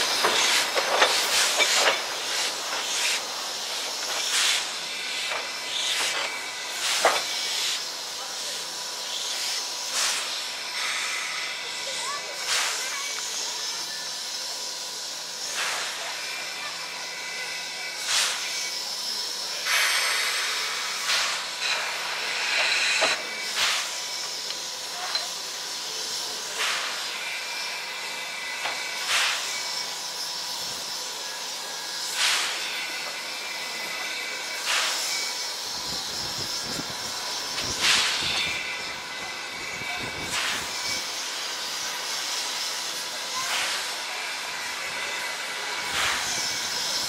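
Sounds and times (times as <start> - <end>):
bursts of escaping steam: 0.0 - 47.0
steam locomotive hissing: 0.0 - 47.0.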